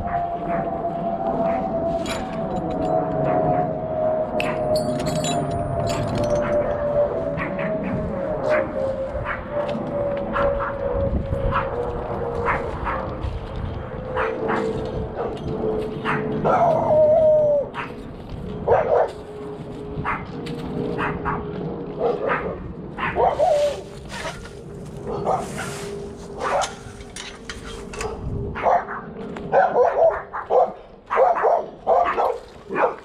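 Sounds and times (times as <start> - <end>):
dog barking and yipping: 12.4 - 13.2, 14.1 - 15.4, 16.0 - 18.0, 18.7 - 19.2, 21.0 - 24.4, 25.1 - 25.8, 26.4 - 26.9, 28.0 - 33.0
dog yelping: 16.0 - 18.0, 18.7 - 19.1, 22.0 - 24.4, 28.0 - 33.0.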